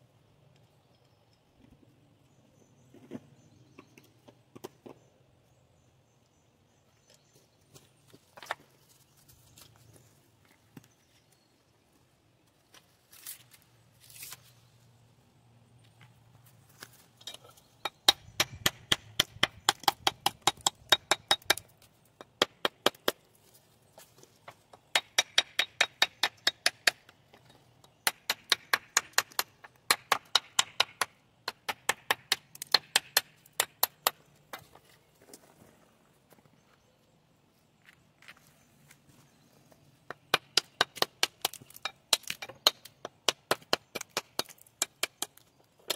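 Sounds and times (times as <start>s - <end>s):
rapid sharp taps on stone: 17.8s - 21.6s, 24.9s - 27.0s, 40.1s - 45.9s.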